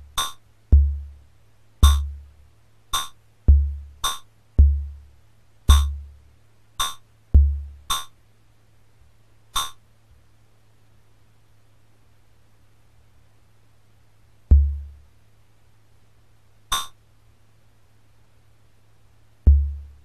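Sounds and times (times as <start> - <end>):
electronic kick drum thumps: 0.0 - 1.2, 1.8 - 2.3, 2.9 - 5.0, 5.7 - 6.2, 6.8 - 8.1, 14.5 - 15.0, 19.5 - 20.0
metallic hi-hat ticks: 0.0 - 1.2, 1.8 - 2.3, 2.9 - 5.1, 5.7 - 6.2, 6.8 - 8.2, 9.5 - 9.8, 14.5 - 15.0, 16.7 - 17.0, 19.4 - 20.0
steady low hum: 0.0 - 20.0.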